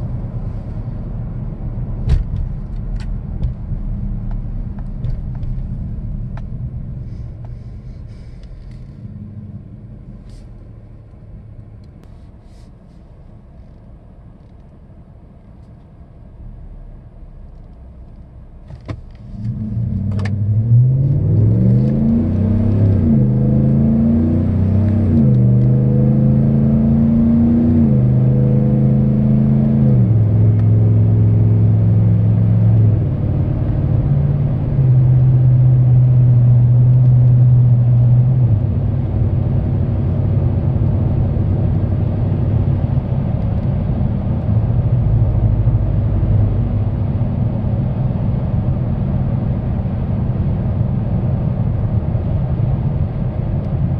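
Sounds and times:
truck exhaust revving and cruising: 18.8s - 53.9s.

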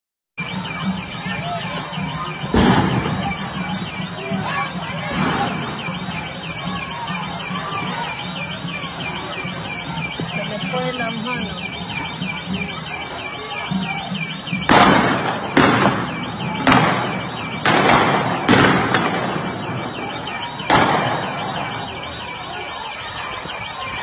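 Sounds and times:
loud sharp bangs echoing: 0.4s - 12.5s, 13.1s - 22.2s
warbling electronic alarm: 0.4s - 24.0s.

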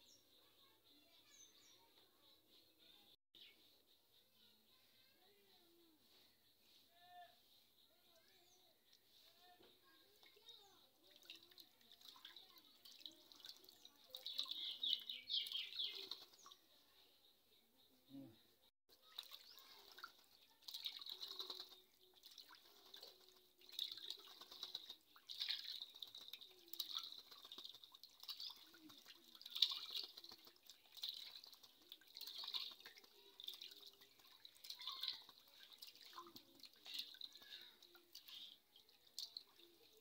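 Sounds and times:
bird splashing in water: 10.1s - 16.6s, 18.9s - 40.0s.

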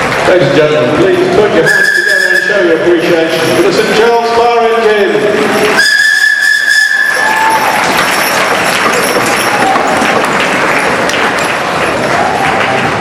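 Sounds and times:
audience applause: 0.0s - 1.2s, 5.4s - 13.0s
steam whistle blowing: 1.6s - 2.7s, 5.8s - 7.7s.

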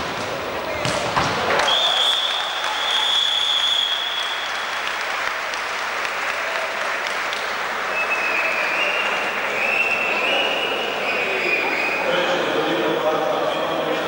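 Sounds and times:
crowd applauding in hall: 1.4s - 12.4s
high whistle-like tone: 1.6s - 4.8s.

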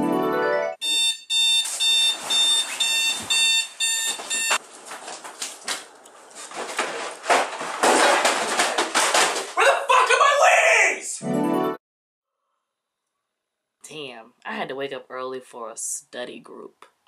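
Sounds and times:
alarm clock beeping: 0.8s - 4.6s
rustling: 1.5s - 9.6s.

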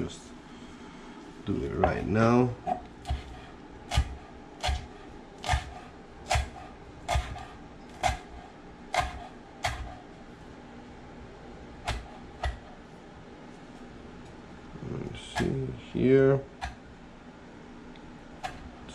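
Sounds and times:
knife chopping on wooden board: 2.7s - 10.0s, 11.8s - 12.8s, 15.4s - 15.6s.

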